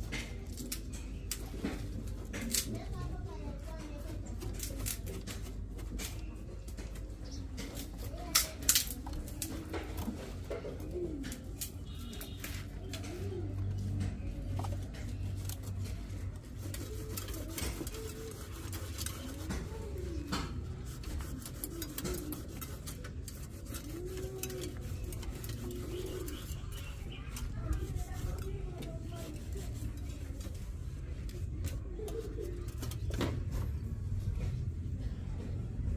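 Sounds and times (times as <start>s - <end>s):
dove cooing: 10.4s - 12.0s.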